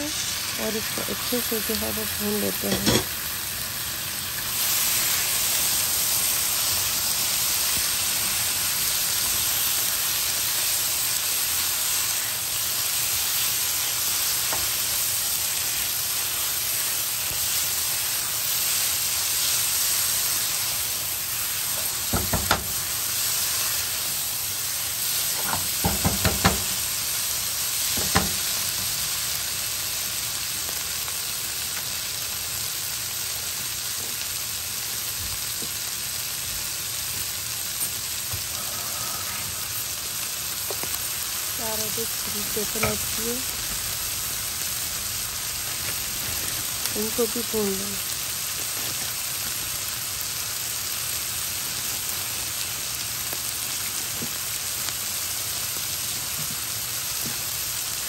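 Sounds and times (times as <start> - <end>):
liver sizzling in oil: 0.0 - 58.0
spatula knocking against pan: 25.4 - 26.7.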